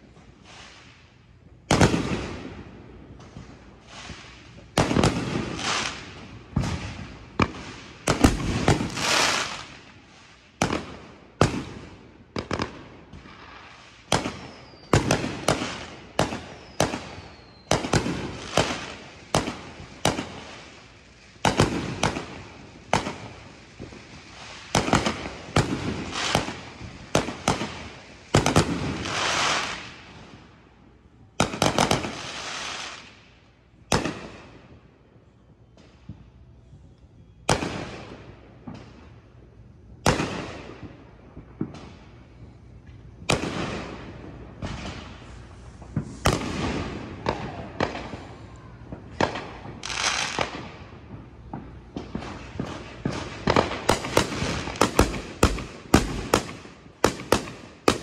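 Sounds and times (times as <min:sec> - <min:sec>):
fireworks bangs: 0:00.0 - 0:30.6, 0:31.4 - 0:33.2, 0:35.7 - 0:58.0
fireworks trailing hiss: 0:00.0 - 0:30.8, 0:31.4 - 0:34.8, 0:35.7 - 0:58.0
falling whistles: 0:14.3 - 0:15.0, 0:16.4 - 0:17.9.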